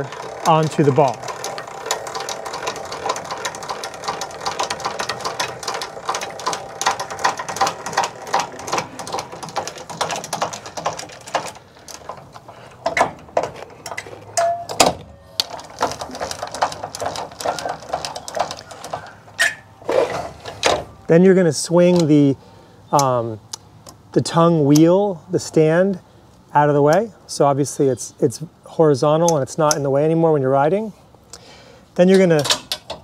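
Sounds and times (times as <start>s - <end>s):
trailer jack gears clicking: 0.0s - 22.2s, 32.0s - 33.0s.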